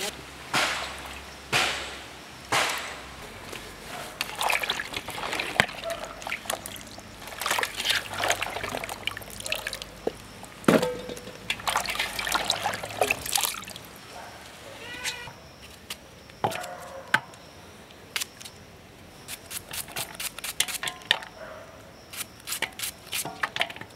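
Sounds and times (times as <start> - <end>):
water sloshing in pot: 3.6 - 14.0.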